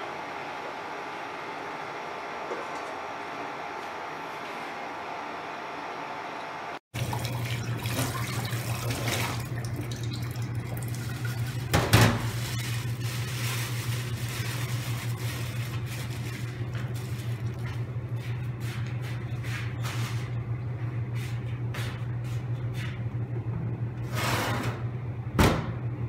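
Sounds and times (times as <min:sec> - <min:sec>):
tap water running into sink: 0:07.0 - 0:12.2.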